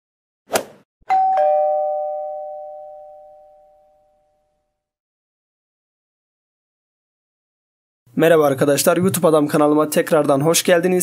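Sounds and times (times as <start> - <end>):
two-note chime: 1.1 - 4.3.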